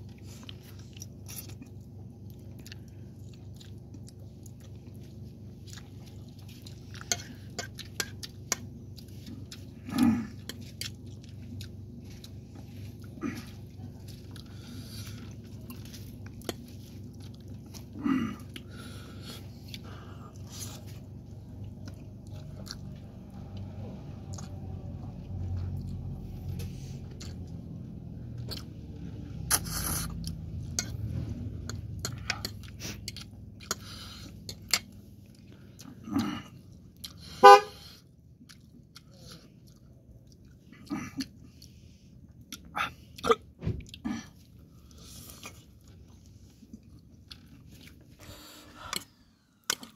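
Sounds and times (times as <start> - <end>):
chewing and slurping noodles: 0.0 - 49.9
loud pitched toot: 37.4 - 37.8.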